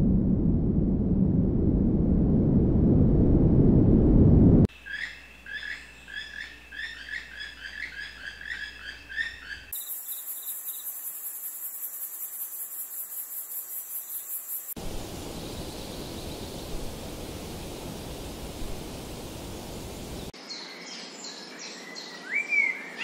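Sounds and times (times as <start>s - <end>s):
small bird chirping: 4.7s - 14.7s
high pulsing insect trill: 4.7s - 20.3s.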